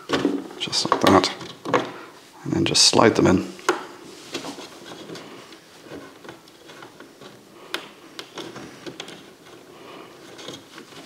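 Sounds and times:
plastic clicks and scrapes: 4.3s - 11.0s.

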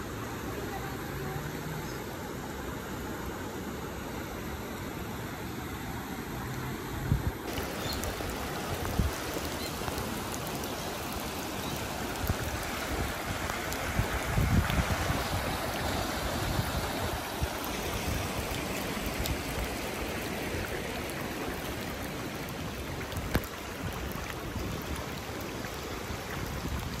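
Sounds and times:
floodwater rushing: 0.0s - 27.0s.

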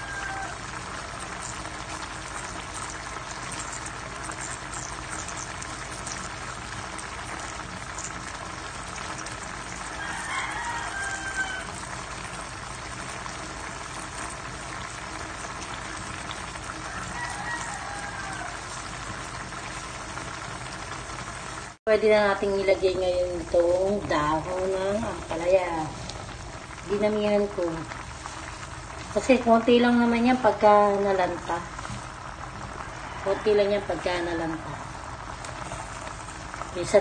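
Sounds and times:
chicken calling: 0.0s - 0.8s, 9.9s - 11.8s, 16.9s - 18.7s
broth bubbling and popping: 0.0s - 37.0s.

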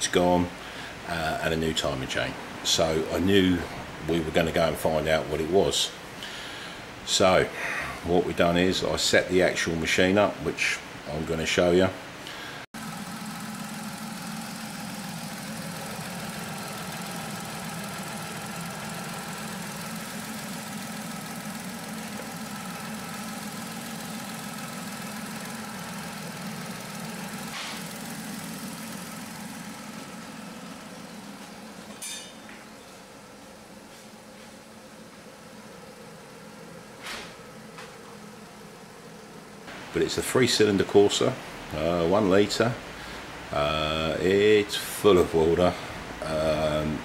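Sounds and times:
car engine idling: 12.3s - 47.0s.

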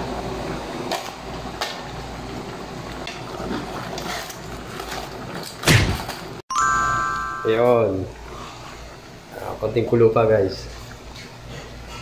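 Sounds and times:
pot simmering with a hiss: 0.0s - 5.4s, 8.1s - 12.0s.

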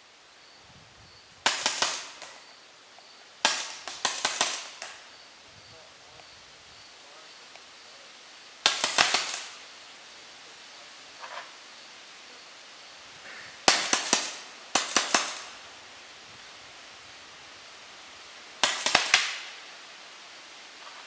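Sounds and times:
paintball markers firing pops: 1.4s - 2.4s, 3.5s - 5.0s, 8.6s - 9.5s, 13.6s - 15.5s, 18.6s - 19.5s.

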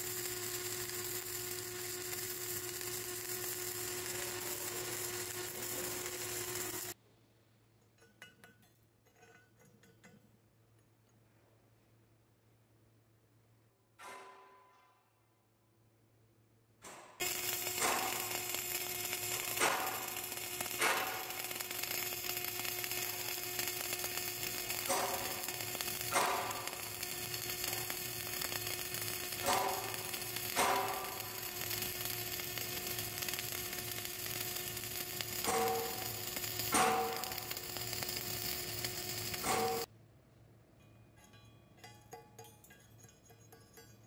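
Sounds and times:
welding arc sizzling: 0.0s - 7.0s, 17.2s - 39.9s
welding pops: 0.0s - 7.0s, 16.9s - 39.9s.

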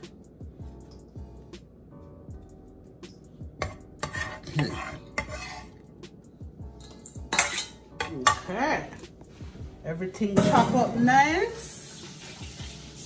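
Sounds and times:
knife scraping wooden board: 3.6s - 5.8s.

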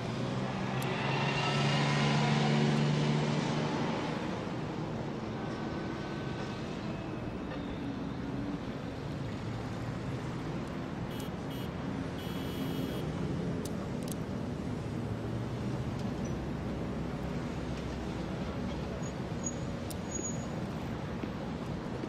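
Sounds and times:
traffic noise: 0.0s - 22.0s.

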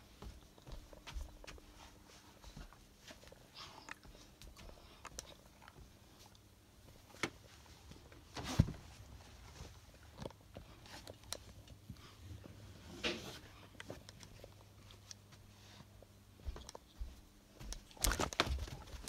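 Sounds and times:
faint low hum: 0.0s - 19.0s.

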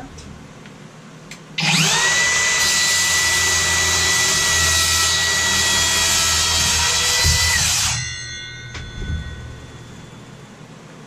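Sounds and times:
miter saw whining: 1.6s - 8.3s.

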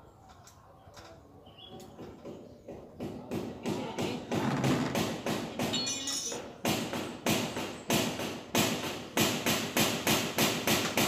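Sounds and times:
hammer striking metal door: 3.0s - 11.0s.

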